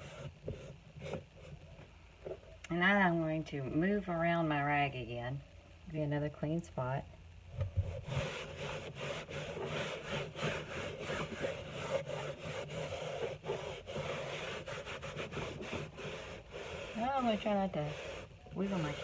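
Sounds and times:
cloth rag scrubbing painting: 0.0 - 1.8, 7.8 - 19.0.

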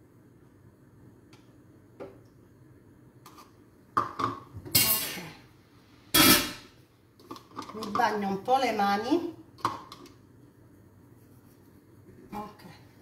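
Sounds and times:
metal lid clanking on pan: 6.2 - 6.6.

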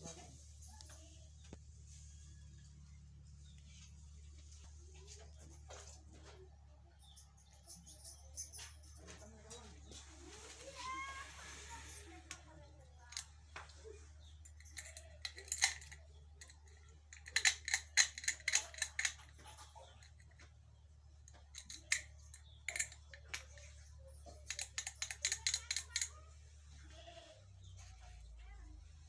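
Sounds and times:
faint low hum: 0.0 - 29.0
padlock clicking and rattling: 14.4 - 20.4, 21.4 - 23.6, 24.3 - 26.1.

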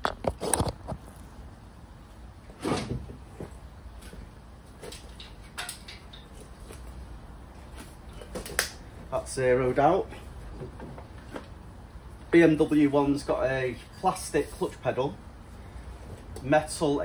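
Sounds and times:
handling knocks and clunks: 10.1 - 11.6.

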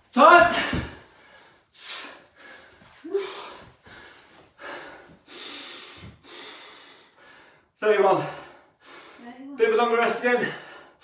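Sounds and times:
man gasping: 0.5 - 7.5
man breathing hard: 0.6 - 9.3, 10.4 - 11.0.

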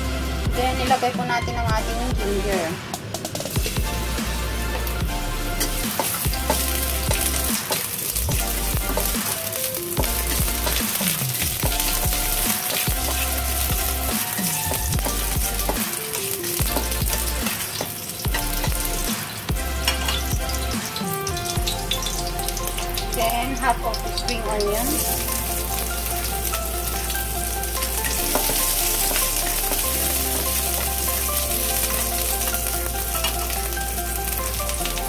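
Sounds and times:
electronic background music: 0.0 - 35.0
ginger sizzling in hot oil: 3.4 - 35.0
spatula stirring in wok: 10.0 - 20.6, 25.0 - 34.5.

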